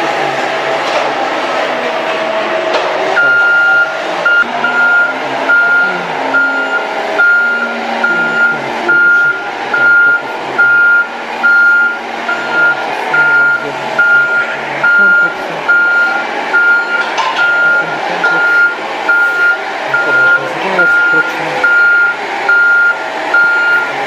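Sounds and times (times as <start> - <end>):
diesel engine running: 0.0 - 24.0
reversing alarm beeping: 3.2 - 24.0.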